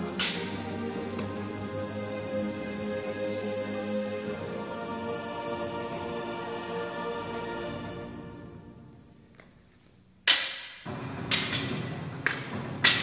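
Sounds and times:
wooden staffs clacking: 0.0s - 1.5s, 9.3s - 13.0s.

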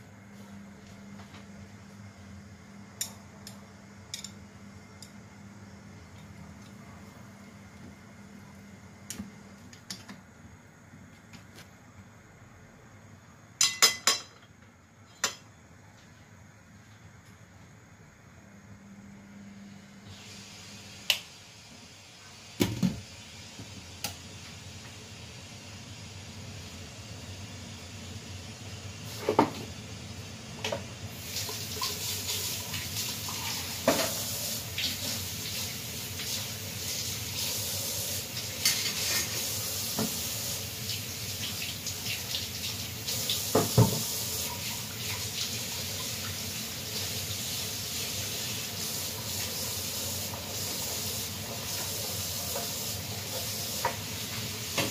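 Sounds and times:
steam hissing: 20.0s - 54.9s
pots bubbling: 22.2s - 54.9s.

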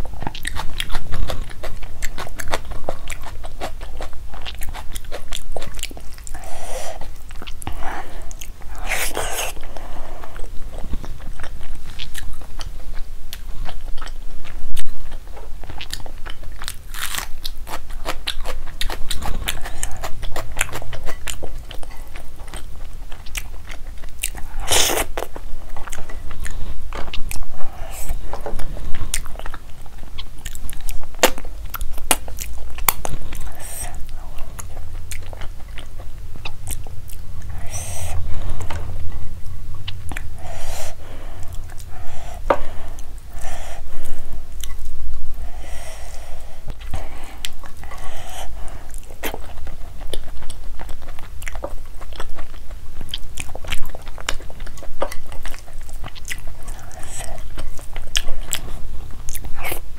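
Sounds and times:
food crunching: 0.0s - 45.0s
wet chewing and smacking: 0.0s - 45.0s, 46.7s - 59.9s.

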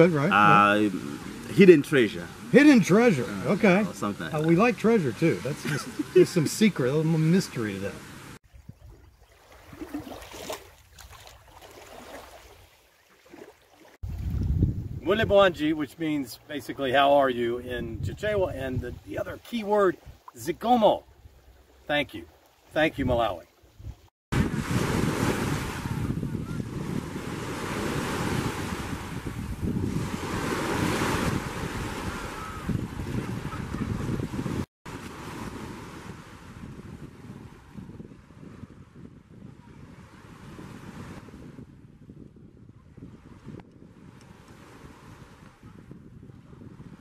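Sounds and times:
waves breaking on a beach: 0.0s - 8.4s, 9.2s - 14.0s, 24.3s - 41.6s, 43.0s - 47.0s
water lapping at shore: 0.0s - 17.3s, 19.0s - 38.6s
wind buffeting the microphone: 8.4s - 11.3s, 14.0s - 15.8s, 17.6s - 19.4s, 23.0s - 47.0s.

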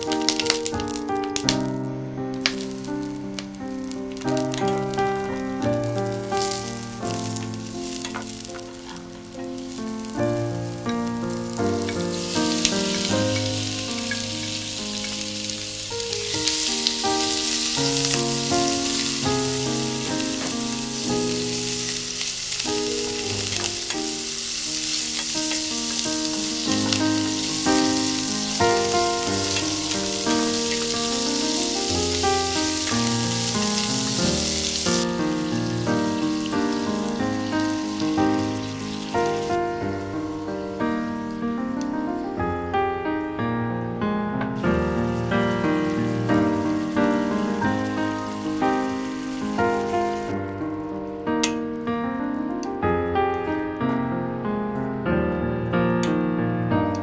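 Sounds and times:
food sizzling in hot oil: 0.0s - 42.0s, 44.6s - 51.1s
melodic background music: 0.0s - 43.0s.

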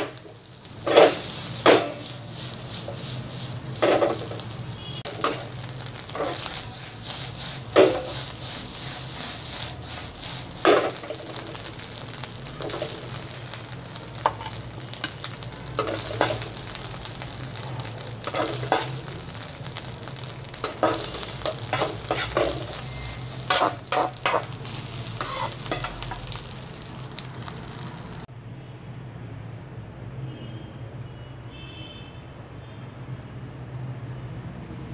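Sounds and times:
metal spatula scraping a pan: 0.0s - 27.8s
rice sizzling in a wok: 0.0s - 28.3s.

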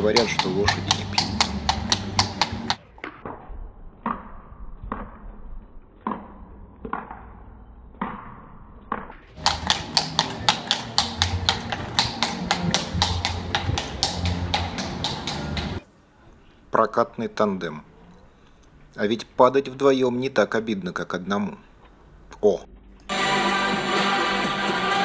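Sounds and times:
hooves clip-clopping on cobblestones: 0.0s - 2.8s, 9.4s - 15.8s.

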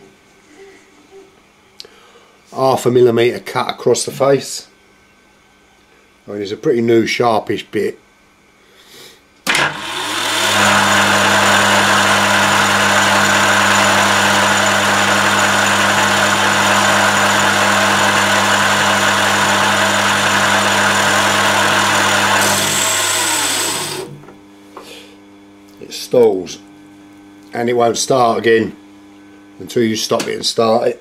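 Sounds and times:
electric lathe motor humming: 9.5s - 24.4s.

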